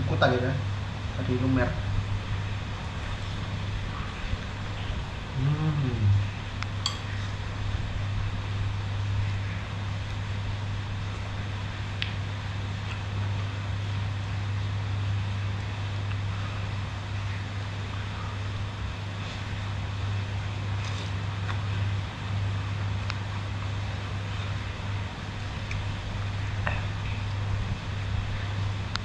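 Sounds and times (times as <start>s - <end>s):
low hum: 0.0s - 29.0s
spoon clicking on glass bowl: 6.8s - 7.1s.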